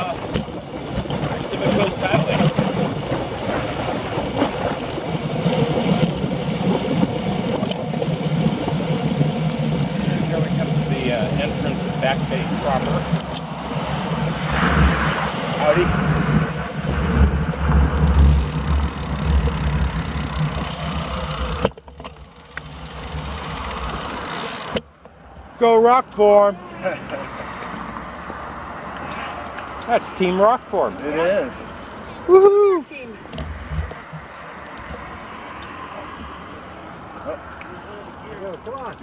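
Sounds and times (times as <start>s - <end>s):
wind buffeting microphone: 0.0s - 21.8s
bicycle tyre hum: 0.0s - 39.0s
wind rush: 10.9s - 21.6s.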